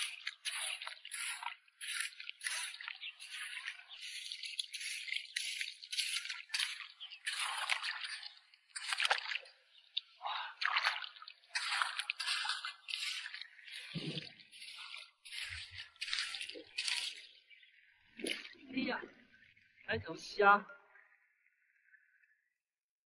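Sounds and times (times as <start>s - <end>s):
hand hoe scraping wet sand: 0.0s - 9.3s, 11.5s - 17.3s.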